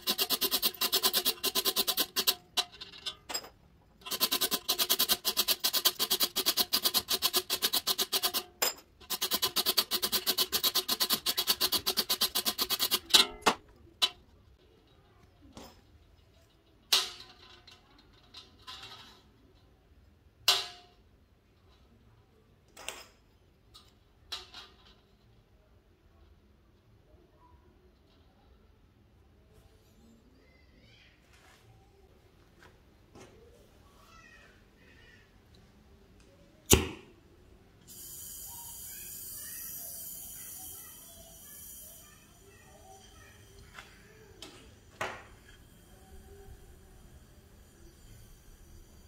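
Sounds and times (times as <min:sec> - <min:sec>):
wire brush scrubbing metal: 0:00.0 - 0:03.4, 0:04.0 - 0:14.3
metal tubes knocking and clinking: 0:00.0 - 0:19.3.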